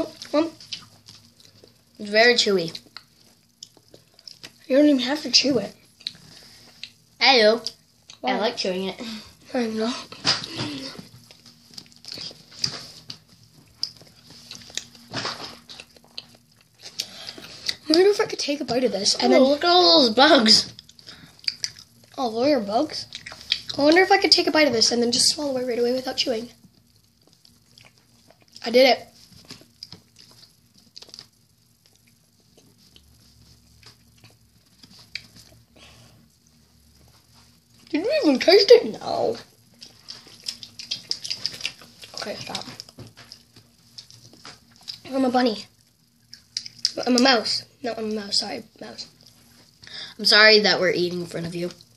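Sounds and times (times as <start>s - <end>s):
faint steady hum: 0.0s - 51.9s
chewing and mouth noises: 0.1s - 1.8s, 2.6s - 4.6s, 10.4s - 18.0s, 20.6s - 22.2s, 22.9s - 24.1s, 26.6s - 35.6s, 39.6s - 45.1s, 45.8s - 47.3s
mouth chewing fudge: 20.7s - 22.2s, 26.7s - 28.6s, 39.6s - 45.1s.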